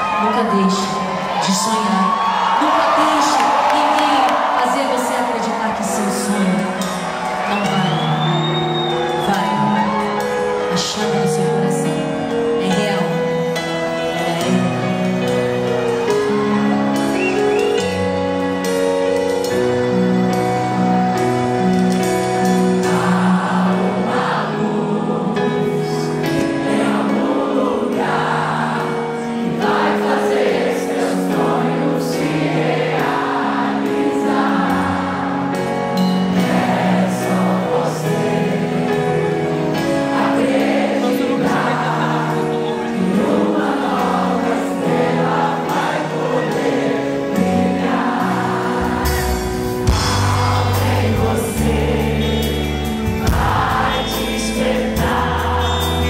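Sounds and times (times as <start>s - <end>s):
full band playing: 0.0s - 56.0s
women singing in harmony: 22.8s - 35.2s, 39.9s - 56.0s.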